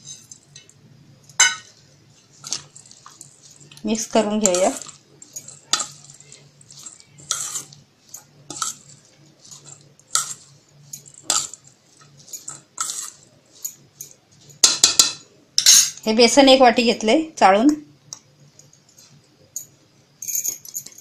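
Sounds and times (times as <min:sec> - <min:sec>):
metal spoon scraping a metal bowl: 0:01.4 - 0:16.0.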